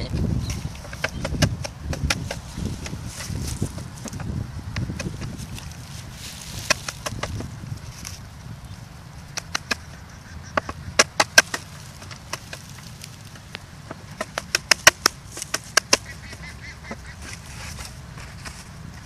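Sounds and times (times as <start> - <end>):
bamboo tube cracks and clicks: 9.3 - 9.8.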